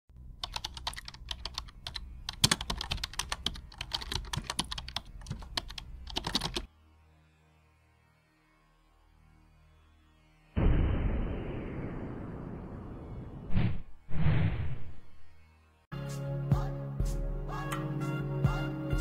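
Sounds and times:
keyboard typing clicks: 0.4s - 6.7s.

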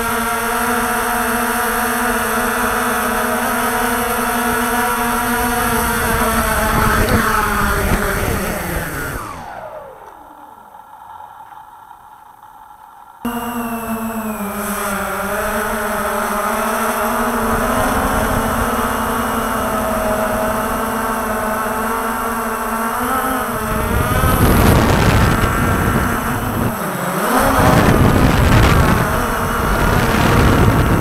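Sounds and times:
drone motors humming: 0.0s - 31.0s
wind rush and prop wash: 1.8s - 9.8s, 14.6s - 31.0s.

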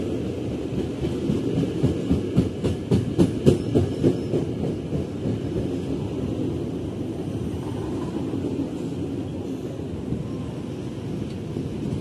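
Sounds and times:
train rumble: 0.0s - 12.0s
train wheels clattering: 0.7s - 5.8s.

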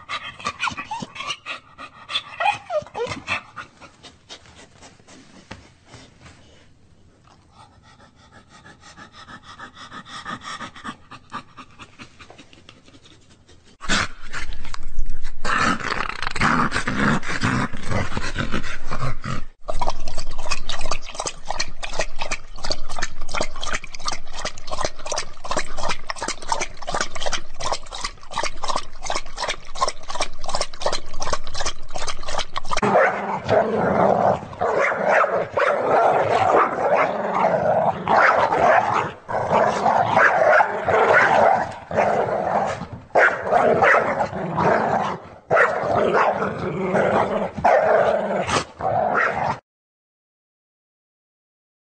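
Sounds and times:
dog panting: 7.5s - 13.8s
dog growling: 32.8s - 49.6s.

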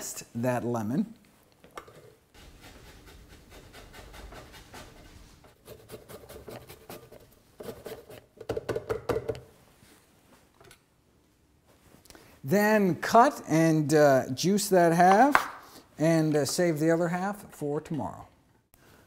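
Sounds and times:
grater scraping lemon rind: 2.4s - 8.2s.

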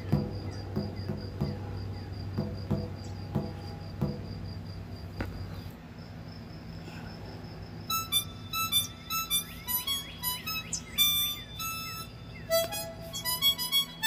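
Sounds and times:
soft knocks: 0.0s - 1.7s, 2.3s - 4.5s
insect chirping: 0.0s - 14.0s.

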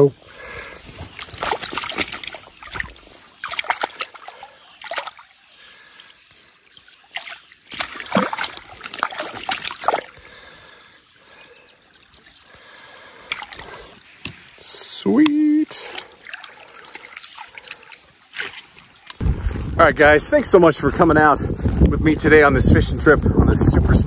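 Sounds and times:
stream trickling: 0.0s - 22.4s
fish splashing in water: 0.4s - 11.4s, 12.6s - 14.6s, 15.7s - 19.2s.

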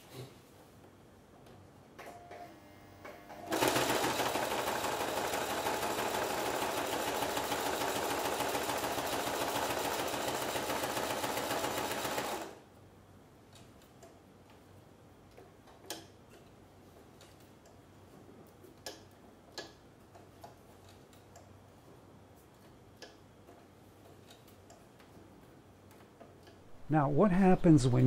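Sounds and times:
sewing machine stitching leather: 3.5s - 12.6s.

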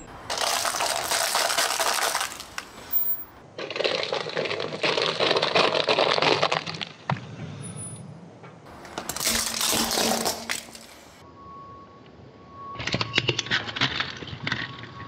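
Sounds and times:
tyre crushing foil cups: 0.3s - 2.8s, 8.8s - 11.2s.

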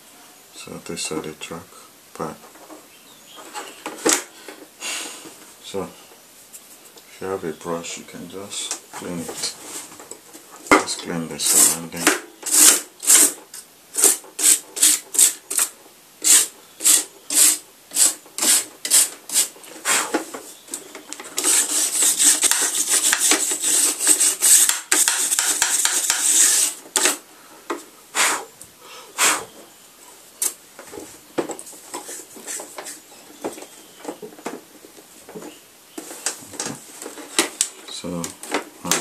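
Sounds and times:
brush scrubbing circuit board: 21.4s - 26.8s.

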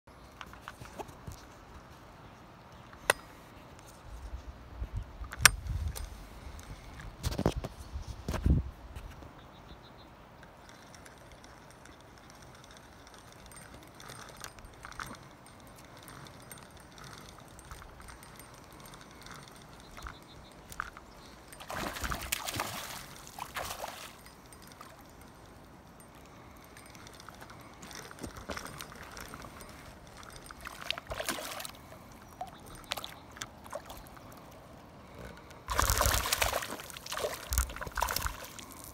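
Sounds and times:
small clicks: 10.4s - 34.4s
fish splashing at surface: 35.7s - 38.6s.

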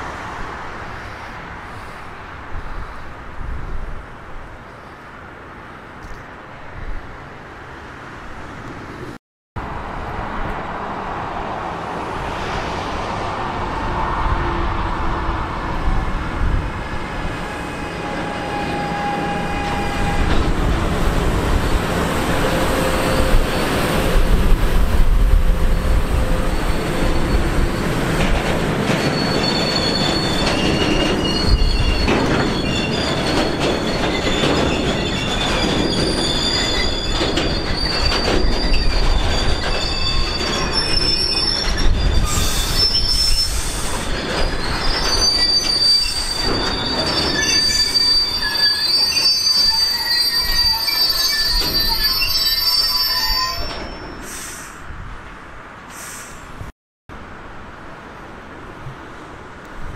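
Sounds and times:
freight train rumbling past: 7.7s - 59.9s
high-pitched wheel squeal: 17.5s - 20.5s, 25.6s - 28.2s, 28.9s - 54.5s.

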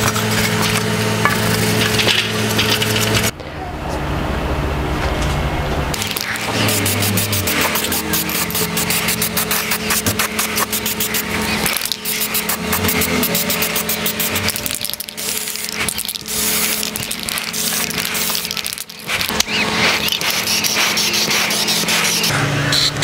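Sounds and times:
spray paint can hissing: 6.0s - 22.3s.

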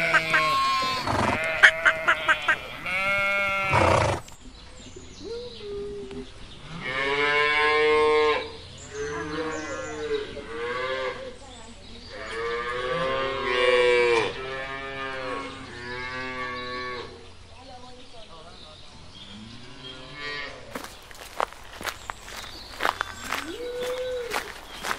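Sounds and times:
cattle mooing: 0.0s - 4.2s.

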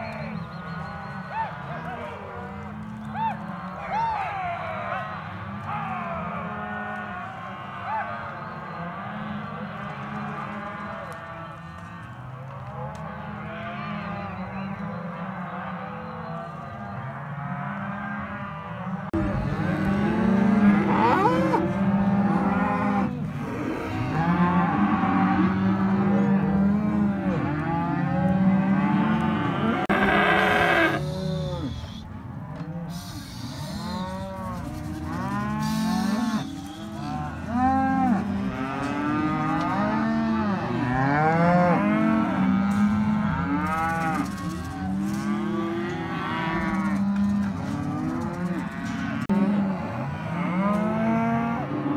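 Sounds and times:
cattle mooing and bawling: 17.3s - 51.9s.

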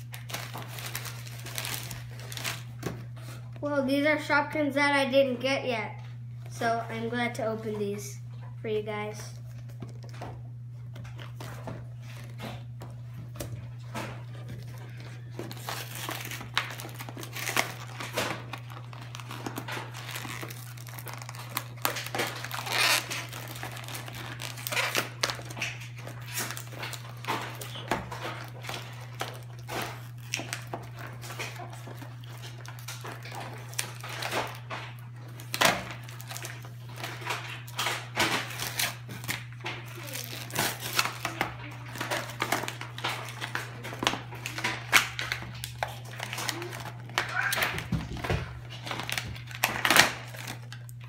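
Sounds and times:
cardboard tearing: 0.0s - 3.0s, 14.0s - 51.0s
plastic crinkling: 0.0s - 3.7s, 8.9s - 51.0s
steady low hum: 0.0s - 47.2s.

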